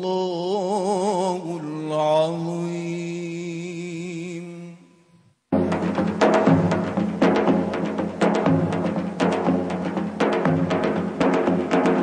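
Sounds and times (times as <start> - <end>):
television intro music: 5.5 - 12.0
strong drum hits: 5.6 - 12.0.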